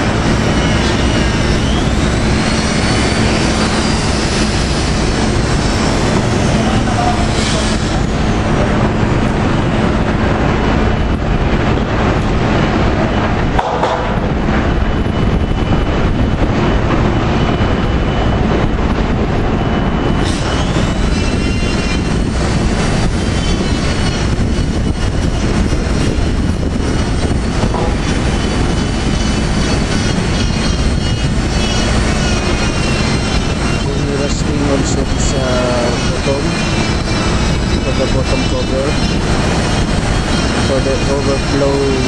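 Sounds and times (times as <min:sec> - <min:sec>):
heavy machinery drone: 0:00.0 - 0:42.0
angle grinder whining: 0:20.2 - 0:42.0.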